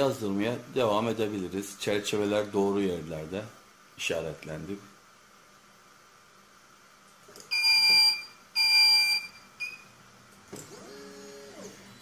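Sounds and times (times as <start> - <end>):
long electronic beeps: 7.5 - 9.9.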